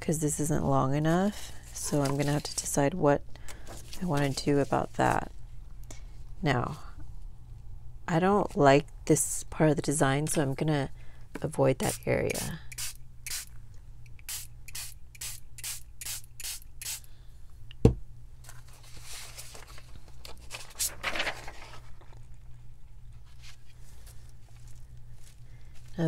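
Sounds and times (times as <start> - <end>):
spray bottle spraying: 11.9 - 13.5, 14.2 - 17.0.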